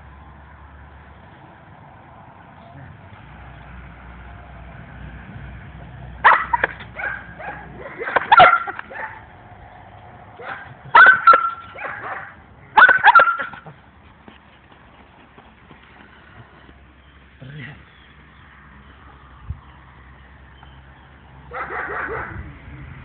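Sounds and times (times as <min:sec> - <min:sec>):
young dog barking: 0:06.2 - 0:09.3, 0:10.4 - 0:13.8, 0:21.5 - 0:22.4.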